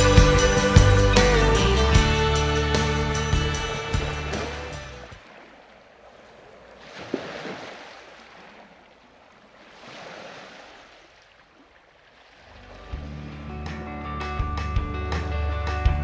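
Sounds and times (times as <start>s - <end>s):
music: 0.0s - 5.1s, 12.7s - 16.0s
waves washing in: 0.1s - 13.7s.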